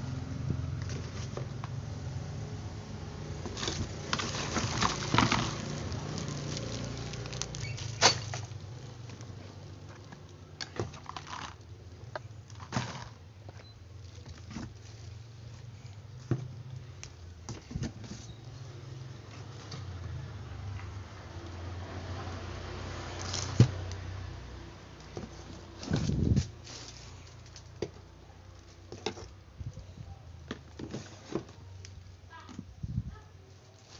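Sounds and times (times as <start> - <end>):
cardboard box rustling: 3.4 - 8.6.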